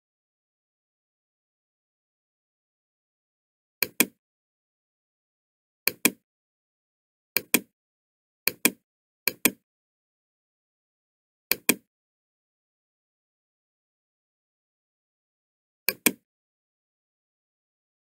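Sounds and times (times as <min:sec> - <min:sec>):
computer mouse clicking: 0:03.8 - 0:04.2, 0:05.9 - 0:06.2, 0:07.4 - 0:07.7, 0:08.5 - 0:09.6, 0:11.5 - 0:11.9, 0:15.9 - 0:16.2.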